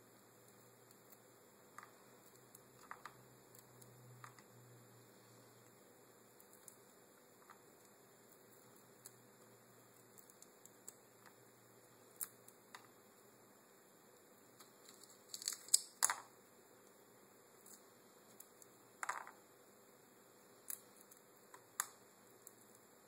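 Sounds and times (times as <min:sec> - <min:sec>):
crab shell cracking: 0:15.3 - 0:16.2.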